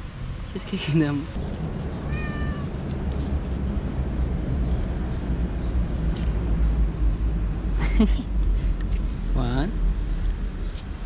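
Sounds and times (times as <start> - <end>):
city street traffic rumble: 0.0 - 11.0.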